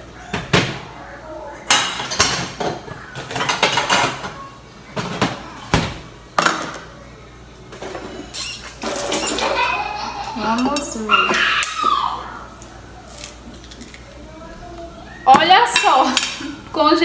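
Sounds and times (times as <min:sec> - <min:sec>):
dishes and utensils clattering: 0:01.6 - 0:06.9, 0:07.7 - 0:11.8, 0:15.3 - 0:16.6.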